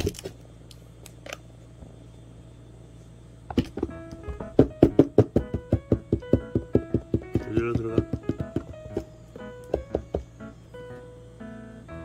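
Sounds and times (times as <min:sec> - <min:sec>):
steady low hum: 0:00.0 - 0:12.0
plucked piano-like music: 0:03.6 - 0:12.0.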